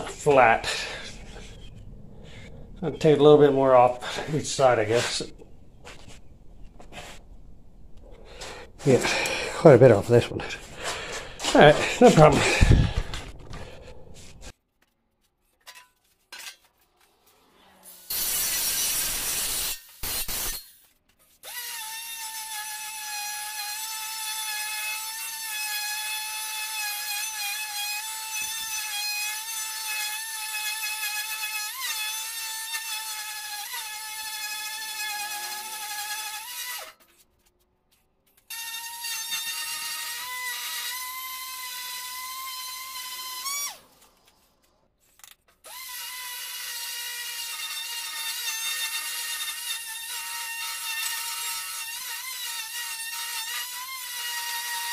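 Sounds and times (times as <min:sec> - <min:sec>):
electric sander on sheet steel: 0:17.3 - 0:20.6.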